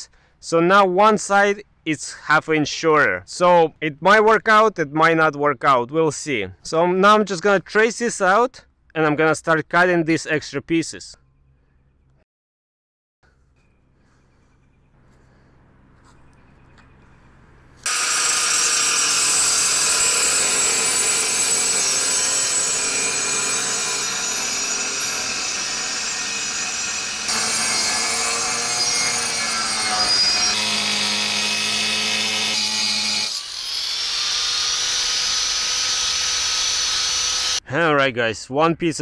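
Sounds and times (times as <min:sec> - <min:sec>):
angle grinder cutting metal: 0:17.8 - 0:37.6.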